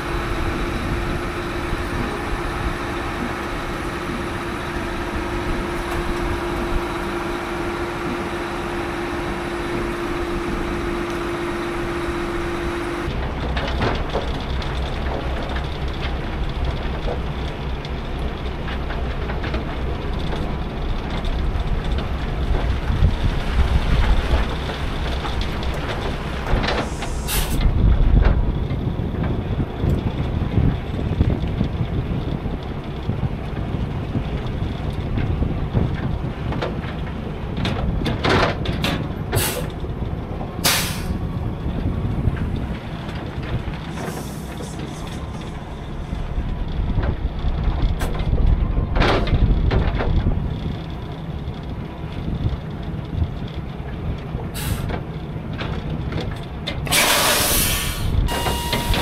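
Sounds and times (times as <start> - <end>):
truck engine rumbling: 0.0 - 59.0
air brakes hissing: 26.8 - 27.6, 39.4 - 39.8, 40.6 - 41.2, 43.9 - 45.7, 54.6 - 54.9, 56.8 - 59.0.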